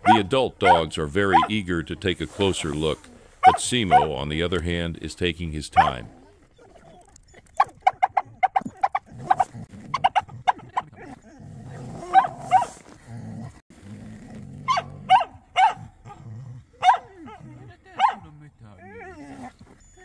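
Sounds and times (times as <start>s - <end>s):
dog barking high-pitched: 0.0s - 1.5s, 3.4s - 4.2s, 5.8s - 6.1s, 7.6s - 11.1s, 12.1s - 12.7s, 14.6s - 16.2s, 16.8s - 18.3s.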